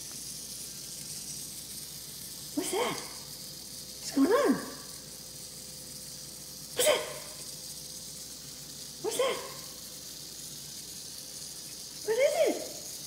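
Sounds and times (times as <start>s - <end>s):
small dog barking: 6.8s - 7.3s.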